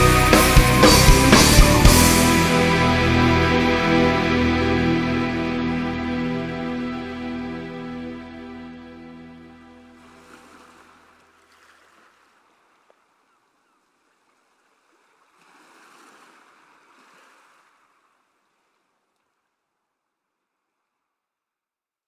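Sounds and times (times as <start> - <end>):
music: 0.0 - 10.0
waves washing on shore: 10.0 - 12.9, 14.6 - 18.2.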